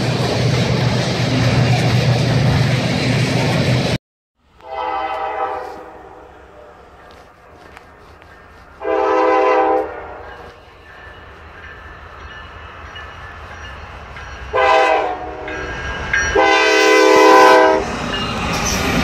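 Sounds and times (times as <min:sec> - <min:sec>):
locomotive air horn blasts: 0:04.6 - 0:07.1, 0:08.8 - 0:10.4, 0:14.5 - 0:15.6, 0:16.4 - 0:17.9.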